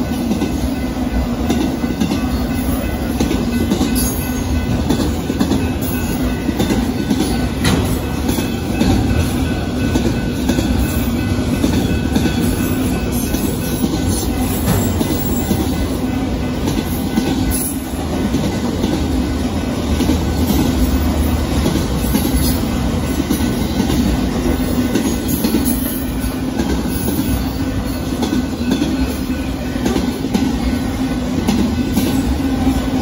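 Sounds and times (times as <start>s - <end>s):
freight train wheels on rails: 0.0s - 33.0s.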